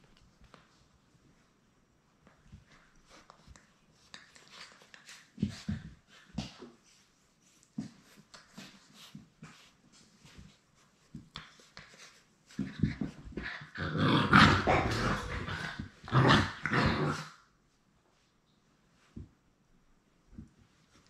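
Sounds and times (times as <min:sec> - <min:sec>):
puppies growling: 0:13.4 - 0:17.4.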